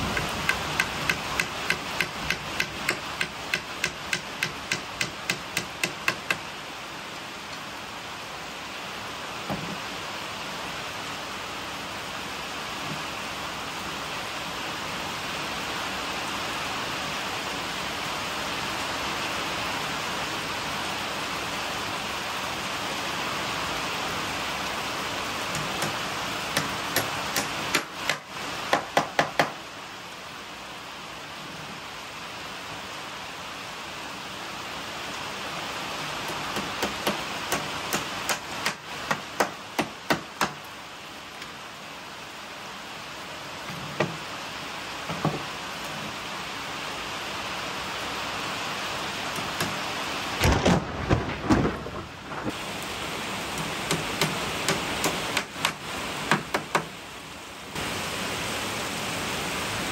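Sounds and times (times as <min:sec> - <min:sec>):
steady rain-like hiss: 0:00.0 - 0:59.9
hammer knocking: 0:00.2 - 0:06.4.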